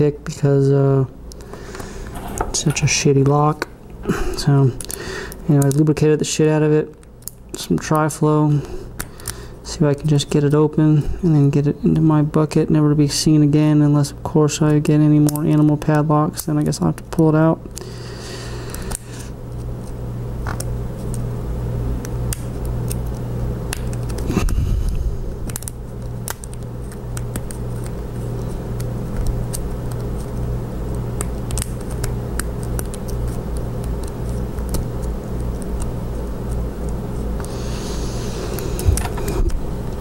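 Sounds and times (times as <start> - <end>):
low hum: 16.9 - 40.0.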